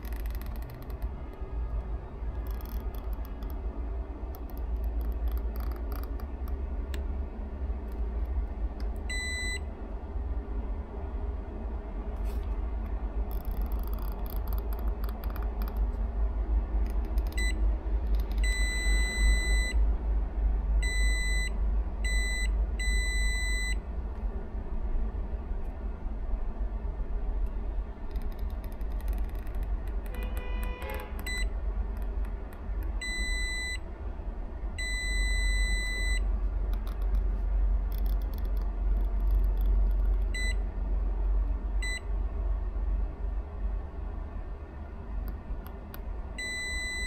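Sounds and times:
probe tips scratching circuit board: 0:00.0 - 0:03.7, 0:04.3 - 0:06.7, 0:13.2 - 0:16.0, 0:16.8 - 0:18.6, 0:28.1 - 0:33.0, 0:36.7 - 0:40.3
multimeter continuity beeps: 0:09.1 - 0:09.7, 0:17.2 - 0:17.6, 0:18.2 - 0:19.8, 0:20.8 - 0:23.8, 0:30.1 - 0:31.6, 0:33.0 - 0:33.8, 0:34.8 - 0:36.3, 0:40.2 - 0:40.6, 0:46.4 - 0:47.0.

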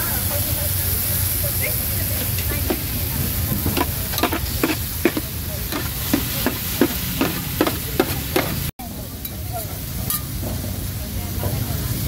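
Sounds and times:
food sizzling: 0:00.0 - 0:08.7
metal spatula scraping wok: 0:02.6 - 0:08.7.

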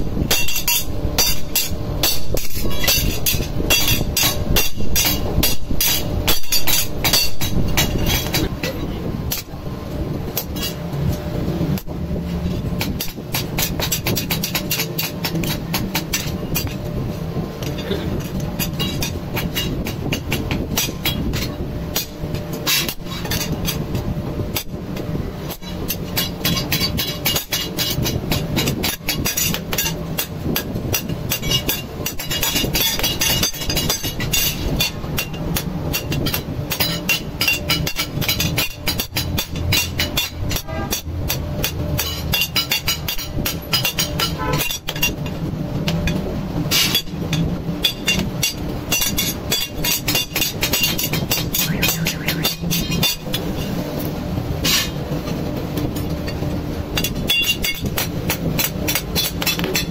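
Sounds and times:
hammer striking metal on anvil: 0:00.2 - 0:09.5, 0:46.8 - 0:53.7.

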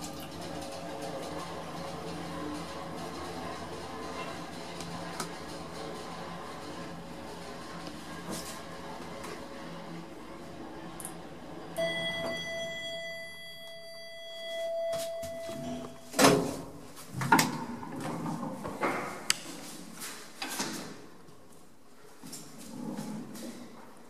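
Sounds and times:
elevator steady tone: 0:00.0 - 0:16.4
elevator doors opening clunk: 0:11.7 - 0:16.6.

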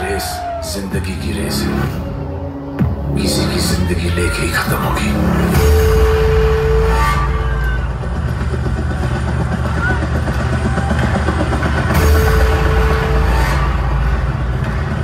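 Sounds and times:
bass-heavy concert music: 0:00.0 - 0:15.0.

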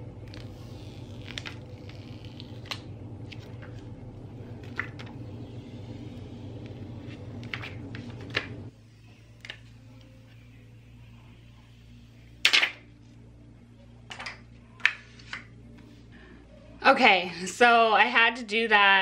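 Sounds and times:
steady low hum: 0:00.0 - 0:19.0
plastic film crinkle: 0:00.2 - 0:02.8.

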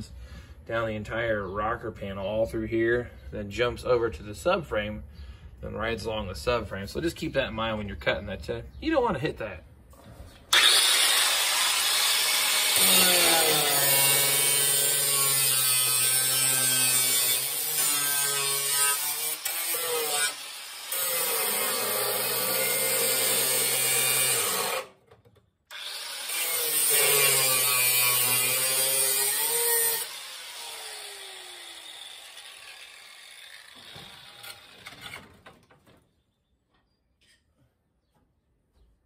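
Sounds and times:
cutoff grinder cutting steel: 0:10.5 - 0:25.0, 0:25.7 - 0:35.3.

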